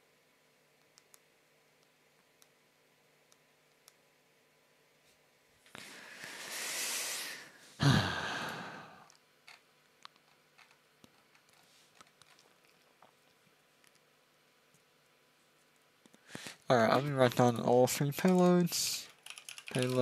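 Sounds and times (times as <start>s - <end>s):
person breathing in: 5.7s - 9.1s
person sighing with a groan: 5.8s - 9.1s.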